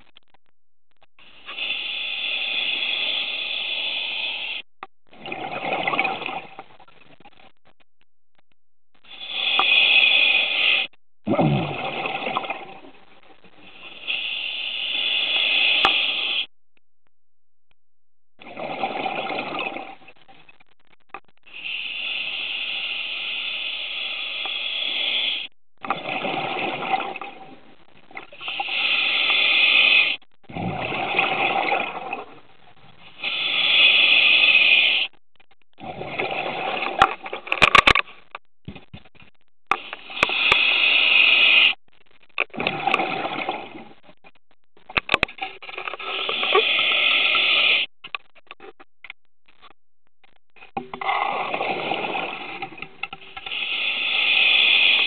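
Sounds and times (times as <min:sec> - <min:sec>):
hissing regulator inhalations: 0:01.2 - 0:04.6, 0:09.0 - 0:10.9, 0:13.7 - 0:16.5, 0:21.5 - 0:25.5, 0:28.4 - 0:30.2, 0:33.1 - 0:35.2, 0:39.8 - 0:41.8, 0:46.0 - 0:47.9, 0:53.3 - 0:55.0
exhaled bubbles rushing: 0:05.1 - 0:06.6, 0:11.3 - 0:13.0, 0:18.4 - 0:20.0, 0:30.5 - 0:32.4, 0:42.6 - 0:44.0, 0:51.0 - 0:52.7.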